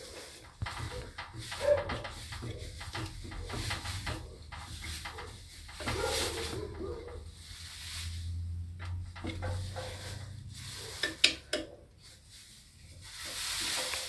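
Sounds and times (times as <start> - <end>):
screwdriver turning and scraping: 0.0 - 7.1, 8.9 - 11.7.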